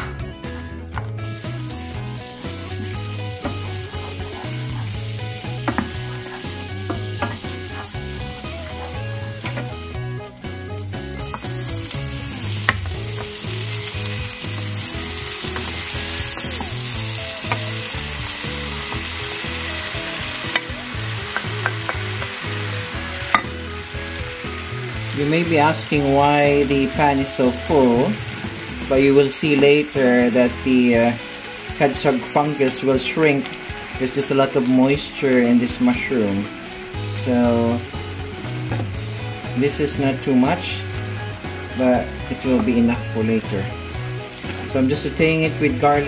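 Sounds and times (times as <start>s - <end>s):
food sizzling in a frying pan: 1.0s - 46.0s.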